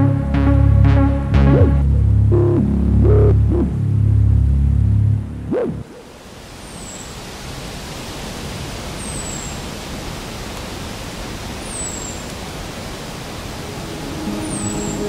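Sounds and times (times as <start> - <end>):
steady rushing noise: 12.7 - 15.0.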